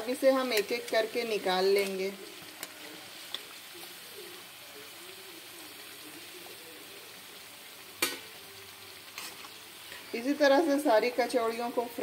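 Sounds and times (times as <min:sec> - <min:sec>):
deep-frying sizzle: 0:00.0 - 0:12.0
spoon clicking against pan: 0:00.5 - 0:01.0.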